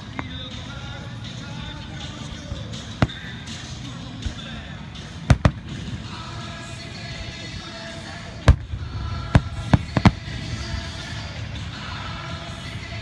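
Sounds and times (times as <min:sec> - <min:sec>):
firework shells bursting: 0:03.0 - 0:03.5, 0:05.3 - 0:06.0, 0:08.5 - 0:10.6.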